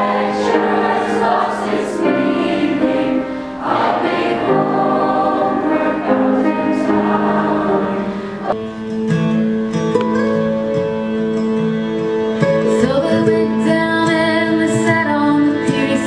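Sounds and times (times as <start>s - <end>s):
choir singing held chords: 0.0s - 9.0s.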